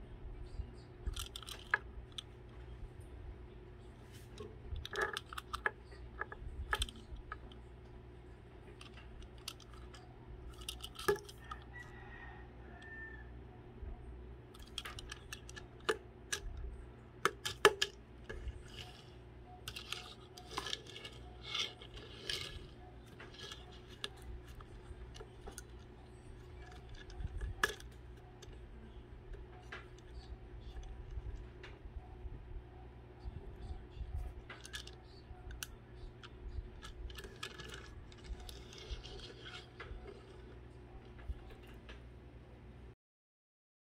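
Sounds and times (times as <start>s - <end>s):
steady low hum: 0.0s - 43.0s
toy van clicking and scraping: 1.0s - 2.5s, 4.1s - 7.7s, 8.4s - 12.9s, 14.5s - 16.6s, 17.2s - 31.8s, 33.6s - 42.0s.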